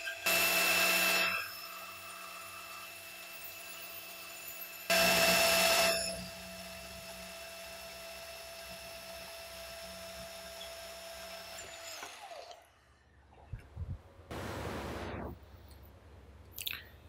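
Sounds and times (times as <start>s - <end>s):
short burst of noise: 14.3s - 15.5s.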